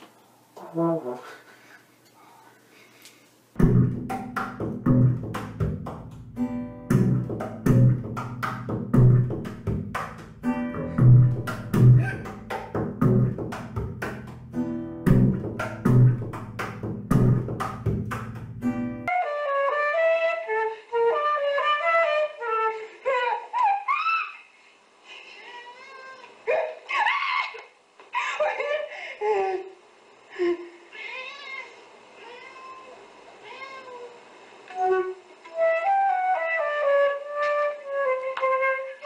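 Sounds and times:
plucked double bass: 3.6s - 19.1s
percussive string clicks: 6.9s - 10.4s, 11.3s - 18.7s
flute melody: 19.0s - 23.9s, 34.7s - 39.0s.

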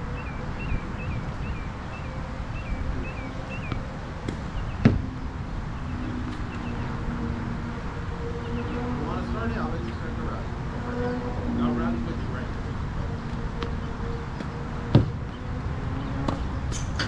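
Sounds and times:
low background rumble: 0.0s - 17.0s
tennis ball struck: 3.6s - 5.0s, 14.4s - 15.4s, 16.3s - 17.0s.

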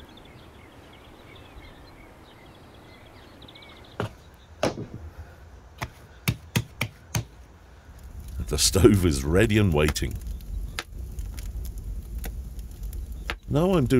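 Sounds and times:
birds chirping: 0.0s - 6.6s, 8.2s - 11.2s, 12.6s - 13.9s.

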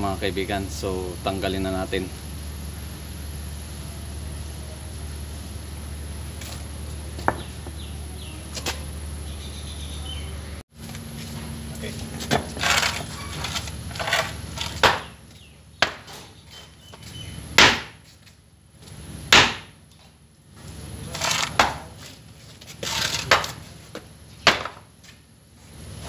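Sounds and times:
scraping: 12.2s - 15.1s, 21.0s - 23.8s.

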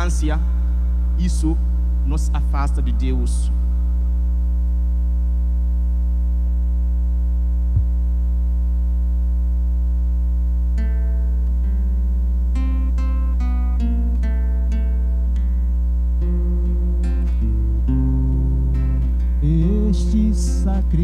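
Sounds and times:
electrical mains hum: 0.0s - 21.0s
acoustic guitar plucking notes: 10.7s - 21.0s.

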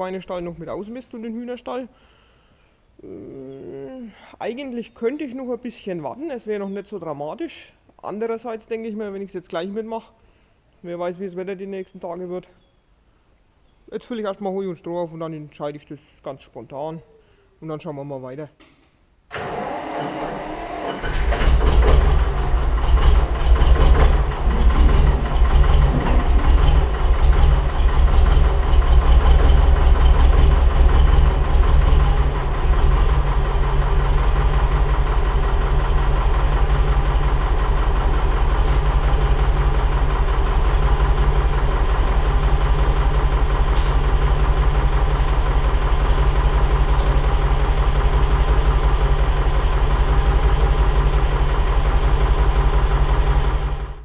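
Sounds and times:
diesel engine running: 19.4s - 54.0s.

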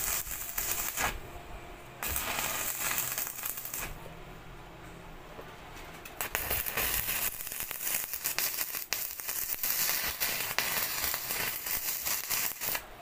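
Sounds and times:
welding arc crackling and sizzling: 0.0s - 1.2s, 2.0s - 4.1s, 6.0s - 13.0s.

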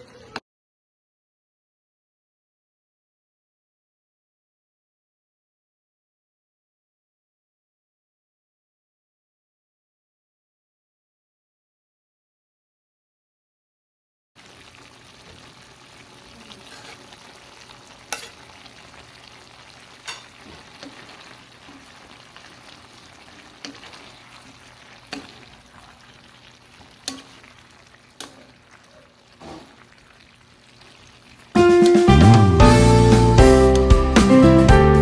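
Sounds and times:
food sizzling in a pan: 14.4s - 34.2s.

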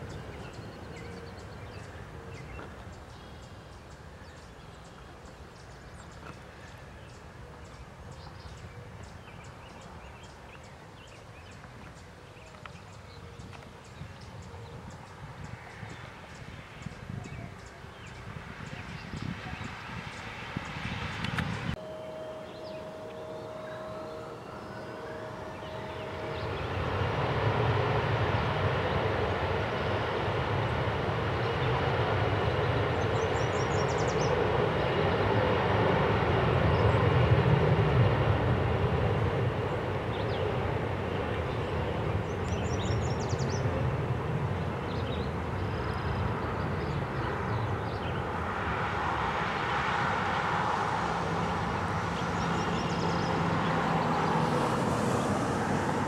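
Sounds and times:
jet engines running: 14.7s - 56.0s.

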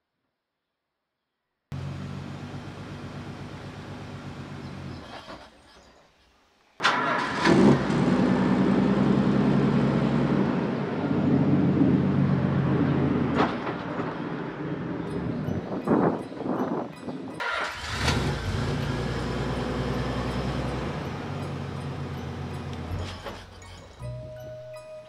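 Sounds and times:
engine revving: 6.8s - 13.8s, 17.4s - 23.5s.

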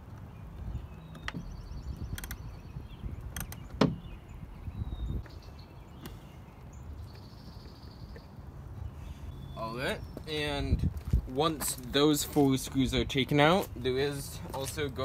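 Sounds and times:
wind rumbling on microphone: 0.0s - 6.2s, 10.0s - 11.8s.

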